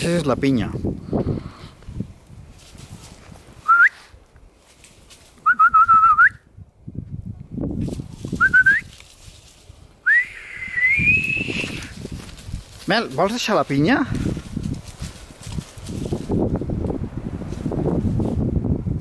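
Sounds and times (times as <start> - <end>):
rustling through undergrowth: 0.0 - 5.8, 7.5 - 10.2, 11.1 - 18.8
person whistling: 3.6 - 4.0, 5.4 - 6.5, 8.4 - 8.9, 10.0 - 11.8.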